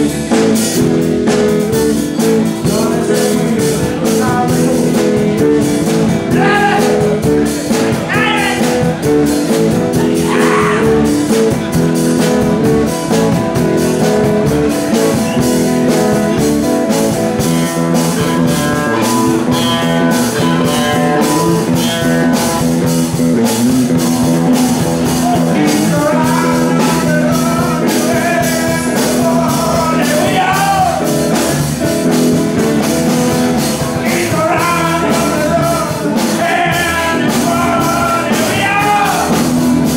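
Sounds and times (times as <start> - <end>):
rock band playing: 0.0 - 39.9
person singing: 2.2 - 11.8, 17.8 - 22.7, 24.4 - 31.6, 33.8 - 39.5.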